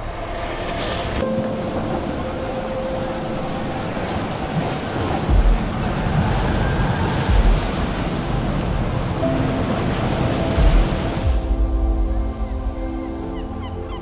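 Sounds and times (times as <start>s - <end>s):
low booms of breaking water: 1.0s - 12.0s.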